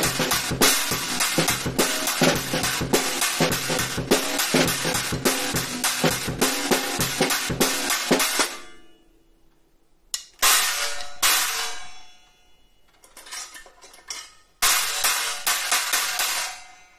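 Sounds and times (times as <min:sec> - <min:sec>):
drum-kit groove: 0:00.0 - 0:08.6
trashy cymbal hits: 0:00.0 - 0:09.0.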